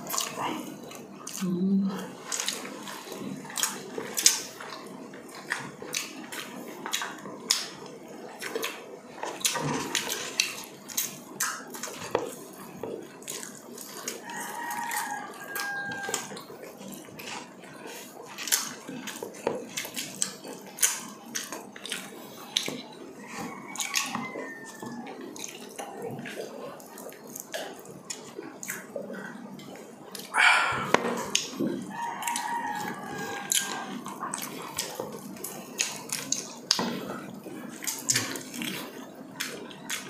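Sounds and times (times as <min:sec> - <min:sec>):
wet chewing and lip smacking: 0:00.0 - 0:40.0
short pitched mouth sound: 0:30.4 - 0:31.2.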